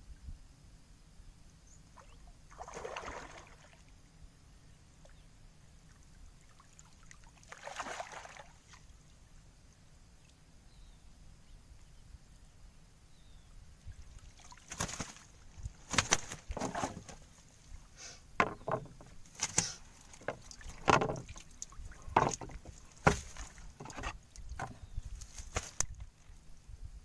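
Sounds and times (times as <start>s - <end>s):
water splashing and sloshing: 2.0s - 4.0s, 5.8s - 9.2s, 13.9s - 26.4s
knocks against wooden hull: 16.0s - 17.2s, 18.4s - 21.4s, 22.1s - 24.8s.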